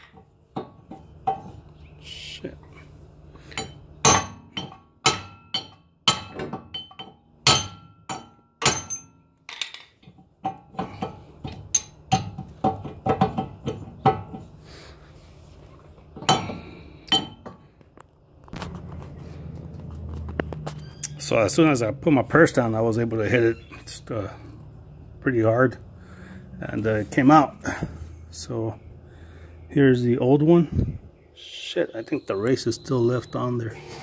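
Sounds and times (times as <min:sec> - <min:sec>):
hammer striking metal: 0:03.6 - 0:09.2.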